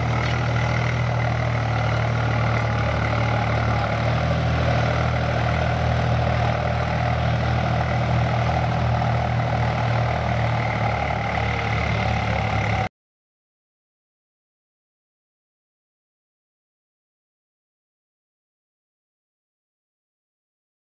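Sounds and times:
tractor diesel engine running: 0.0s - 12.9s.

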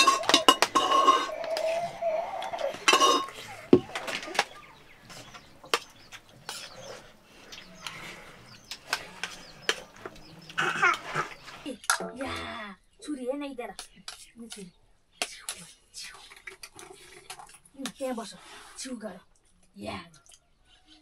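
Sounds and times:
cutlery and dishes clinking: 0.0s - 4.6s.

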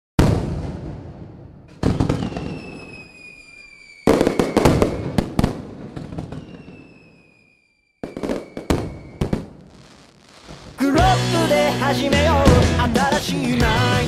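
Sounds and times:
fireworks bangs and crackling: 0.2s - 14.0s
faint falling whistle: 1.9s - 5.2s, 6.2s - 9.4s.

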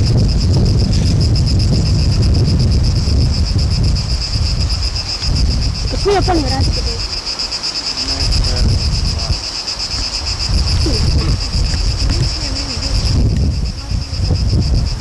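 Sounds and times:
insects chirring: 0.0s - 15.0s
wind buffeting microphone: 0.0s - 15.0s
distant voices: 5.8s - 15.0s.

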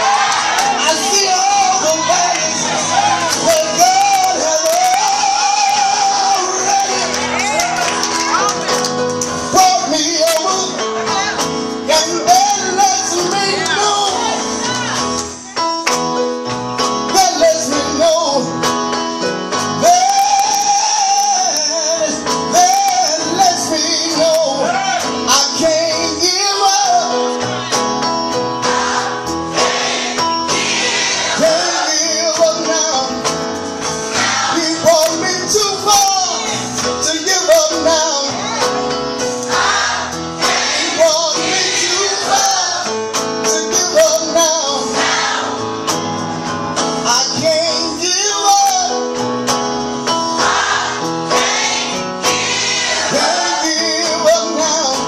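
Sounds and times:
man singing into a microphone: 0.8s - 7.3s, 9.4s - 14.5s, 17.0s - 18.7s, 19.6s - 27.4s, 31.4s - 33.4s, 34.5s - 38.8s, 40.8s - 45.0s, 47.0s - 49.3s, 53.1s - 55.0s.

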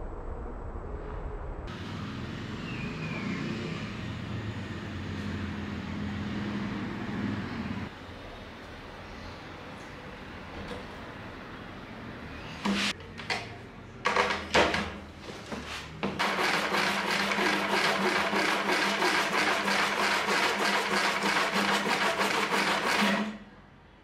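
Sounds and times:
knocks and handling sounds: 12.6s - 16.2s
hand saw cutting wood: 16.2s - 23.4s.

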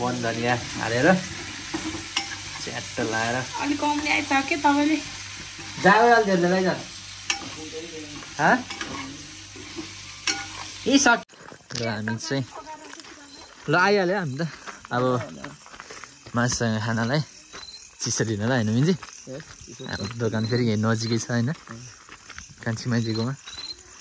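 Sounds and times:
sizzling hiss: 0.0s - 24.0s
people talking: 2.6s - 5.1s, 18.0s - 21.8s.

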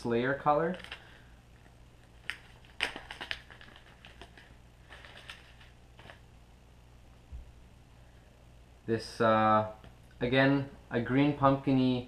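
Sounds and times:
plastic bag crinkling: 0.6s - 6.2s.

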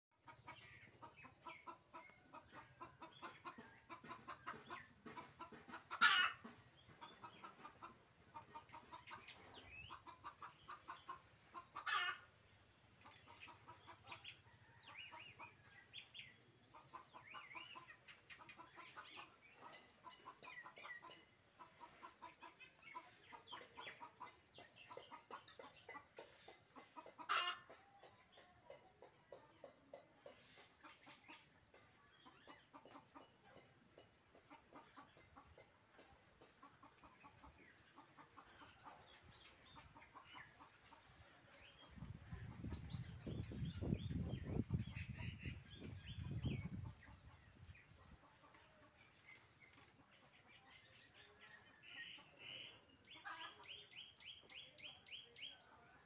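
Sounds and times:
chickens clucking: 0.1s - 56.0s
sharp chicken calls: 0.2s - 12.5s.

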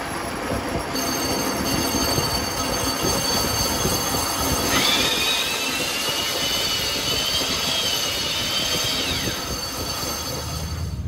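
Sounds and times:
high squeal of cutting tool: 0.9s - 11.0s
lathe cutting metal: 2.4s - 10.9s.

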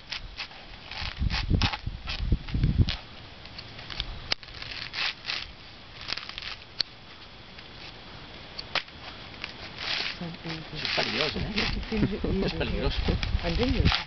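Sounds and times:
coconut husk tearing: 0.0s - 3.0s, 3.8s - 6.8s, 8.8s - 12.1s, 12.9s - 14.0s
sharp cracks: 2.9s - 7.6s, 8.6s - 10.2s.

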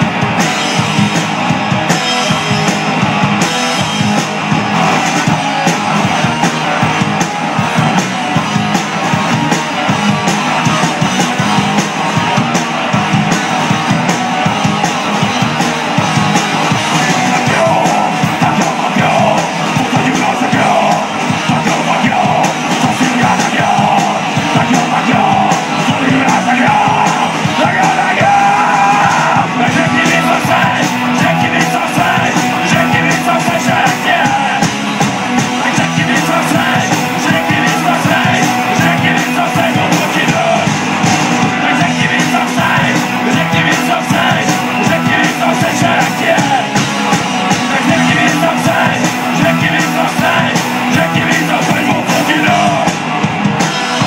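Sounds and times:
drums: 0.0s - 54.0s
electric guitars: 0.0s - 54.0s
person singing: 16.6s - 40.8s, 41.4s - 53.1s.

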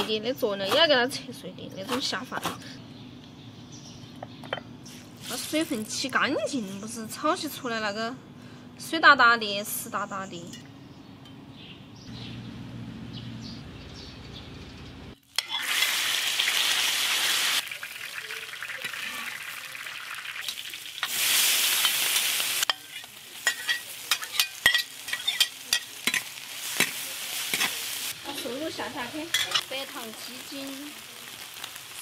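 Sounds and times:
food sizzling in hot oil: 15.2s - 32.0s
spatula scraping wok: 20.5s - 29.9s.

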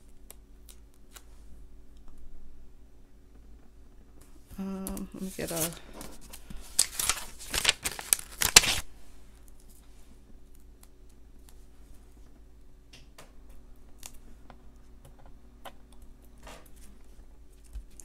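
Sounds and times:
sticker peeling crackle: 6.7s - 8.8s.

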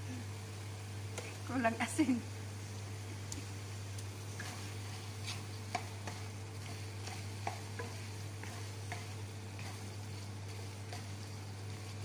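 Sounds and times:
low steady hum: 0.0s - 12.0s
spatula scraping frying pan: 4.3s - 12.0s.

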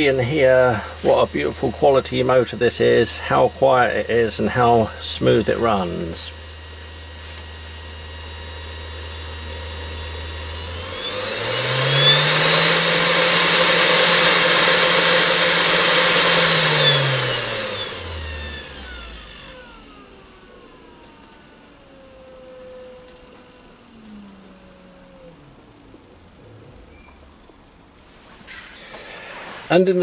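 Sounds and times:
spindle motor whining: 0.0s - 29.5s.

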